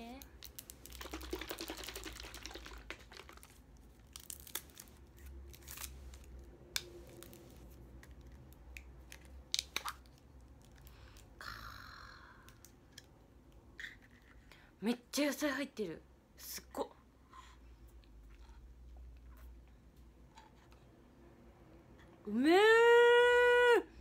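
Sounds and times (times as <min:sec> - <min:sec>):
straw wrapper crinkling and tearing: 0:00.2 - 0:11.1
carton being shaken: 0:00.9 - 0:03.6.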